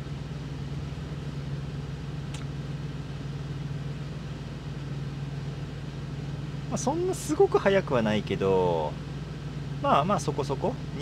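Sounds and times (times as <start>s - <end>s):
faint click: 2.3s - 2.5s.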